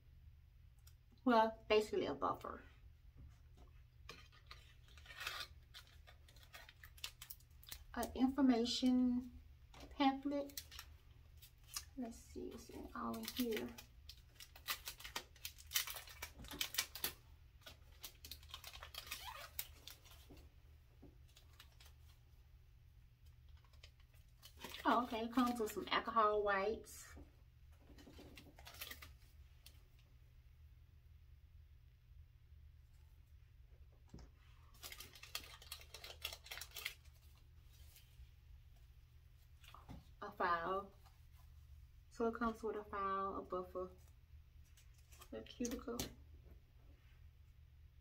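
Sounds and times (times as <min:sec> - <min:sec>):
packaging crinkling and rustling: 0:04.1 - 0:07.9, 0:09.7 - 0:20.4, 0:21.2 - 0:22.2, 0:23.5 - 0:25.8, 0:27.8 - 0:29.8, 0:34.4 - 0:38.2
packaging rustling and clicking: 0:13.1 - 0:20.4, 0:34.8 - 0:37.4.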